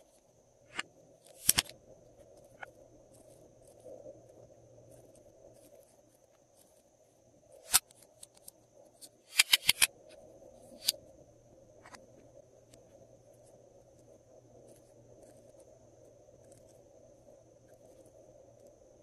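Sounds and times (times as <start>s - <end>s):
plastic pens clicking: 1.4s - 1.7s, 9.3s - 9.9s.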